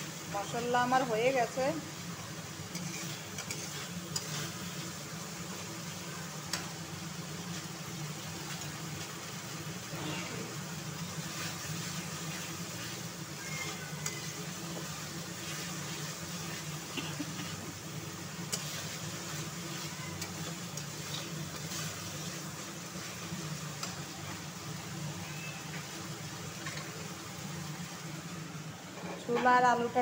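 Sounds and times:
masala sizzling in oil: 0.0 - 30.0
metal spatula scraping pan: 2.7 - 4.7.

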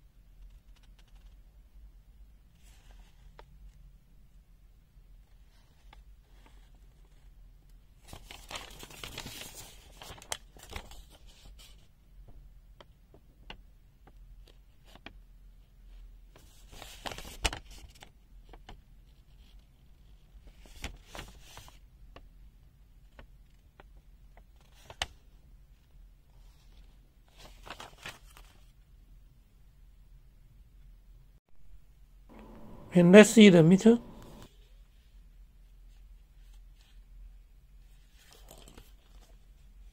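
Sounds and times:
paper rustling and crinkling: 8.0 - 11.8, 16.4 - 21.8, 24.6 - 25.2, 26.4 - 28.7, 37.9 - 39.4.

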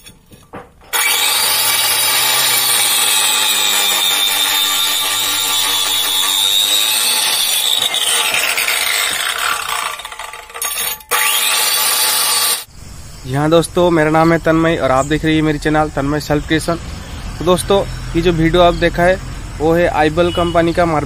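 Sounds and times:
cutter disc grinding through brick: 0.0 - 12.7.

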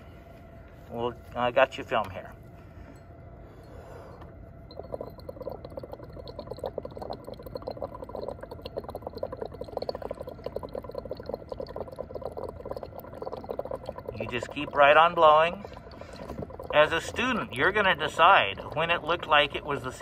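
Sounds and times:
liquid bubbling: 4.5 - 20.0.

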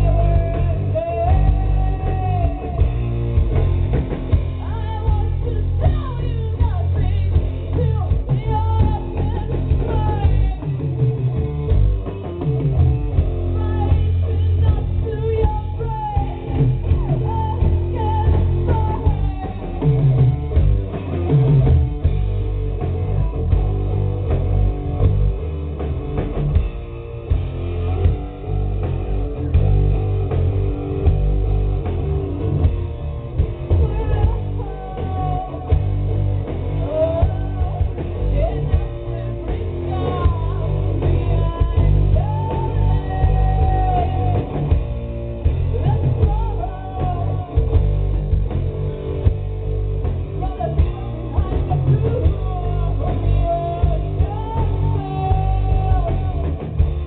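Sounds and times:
woman singing: 0.0 - 3.0, 4.6 - 11.0, 13.4 - 20.4, 33.7 - 35.9, 36.8 - 44.9, 45.6 - 47.8, 50.4 - 56.6
drum kit: 0.0 - 57.0
electric guitars: 0.0 - 57.0.

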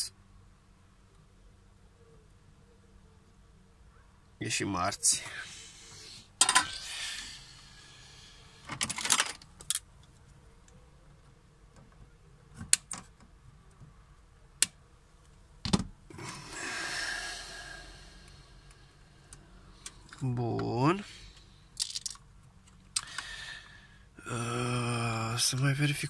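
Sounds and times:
soft hiss: 4.5 - 8.8.

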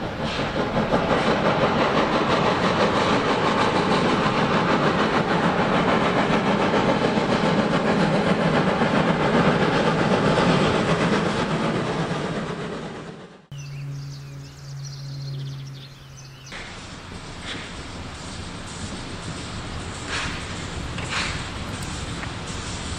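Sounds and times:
steam locomotive chuffing: 0.0 - 22.9
carriage wheels clattering over rail joints: 16.6 - 22.9.

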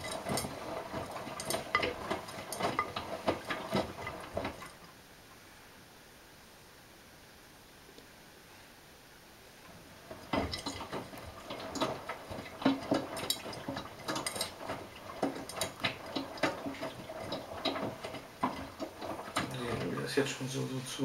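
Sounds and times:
clothes tumbling with clicking: 0.0 - 4.8, 9.6 - 20.1
washing machine drum turning: 0.0 - 4.8, 9.9 - 21.0.

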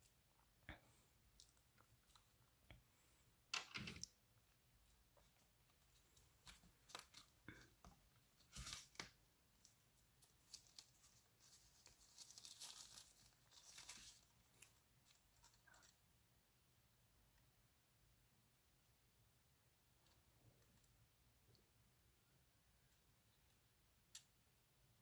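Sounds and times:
plastic sleeve crinkling: 4.8 - 16.0.

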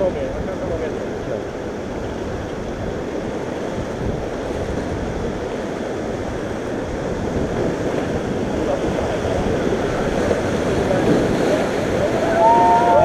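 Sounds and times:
river rapids rushing: 0.0 - 13.0.

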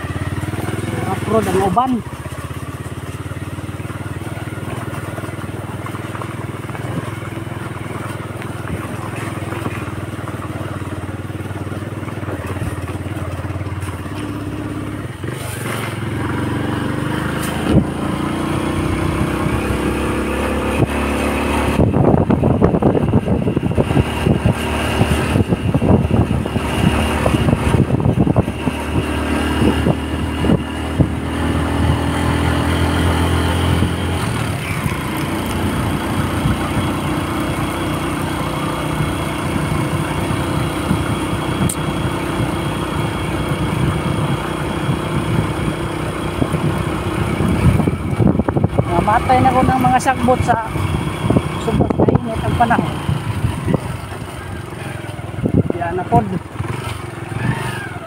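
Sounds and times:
small motorcycle engine running: 0.0 - 58.0
gusty wind on microphone: 15.0 - 58.0.

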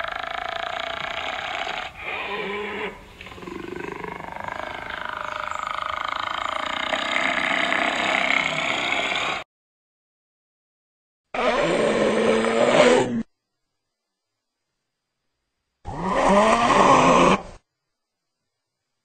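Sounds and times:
hyena calling: 0.0 - 9.4.

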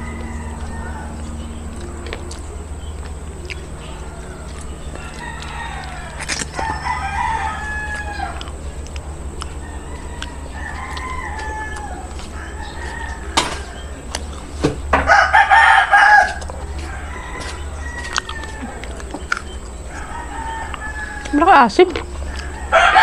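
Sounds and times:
distant roosters crowing: 0.0 - 23.0
rooster crowing: 0.0 - 23.0.

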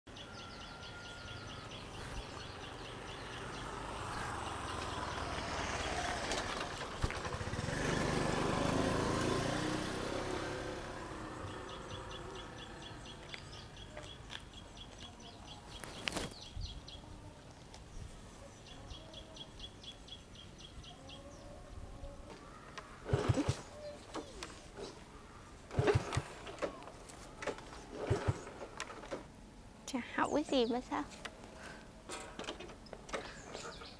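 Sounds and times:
vehicle passing: 1.0 - 13.9.

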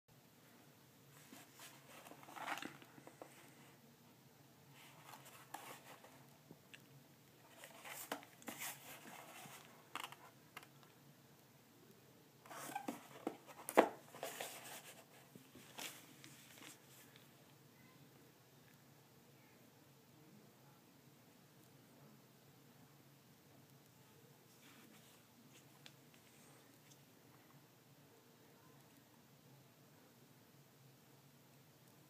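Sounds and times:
cardboard box rustles and taps: 12.6 - 14.9.

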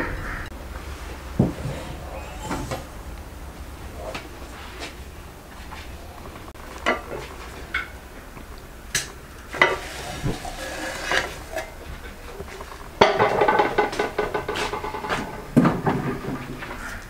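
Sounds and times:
plates and tableware clinking: 9.5 - 16.4.

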